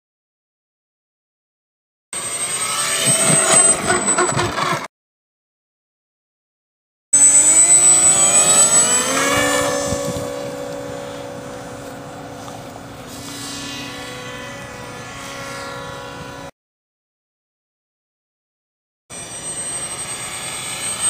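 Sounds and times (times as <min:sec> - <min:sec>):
model jet motor running: 0:02.2 - 0:04.9, 0:07.2 - 0:16.5, 0:19.1 - 0:21.0.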